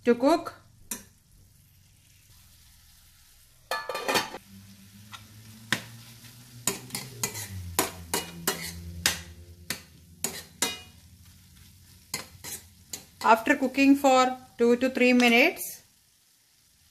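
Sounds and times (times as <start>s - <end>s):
food sizzling in pan: 0.0s - 16.9s
metal spoon scraping frying pan: 3.7s - 4.4s, 5.1s - 11.0s, 11.9s - 13.4s.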